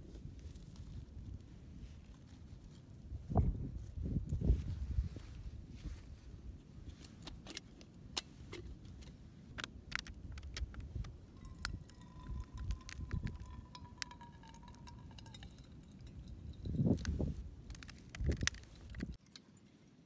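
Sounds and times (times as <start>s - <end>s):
water pouring into steel cup: 11.4s - 16.7s
light metallic clinks: 11.4s - 17.1s.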